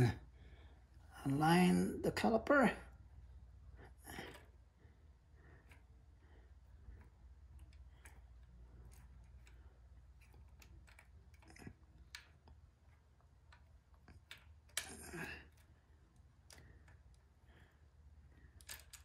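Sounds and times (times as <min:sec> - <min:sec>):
small metal clicks: 0:06.7 - 0:17.7, 0:18.3 - 0:19.0.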